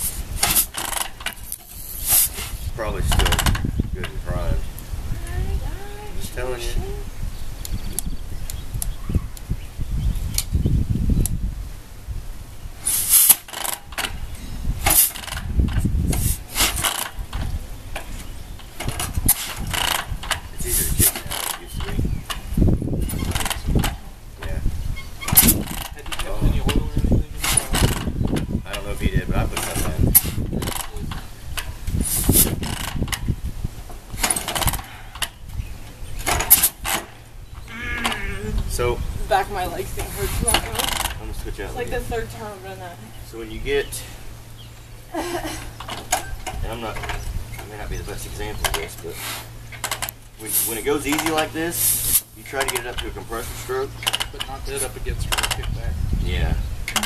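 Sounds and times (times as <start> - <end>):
motorcycle engine turning over: 0.3 - 1.8, 13.2 - 24.0.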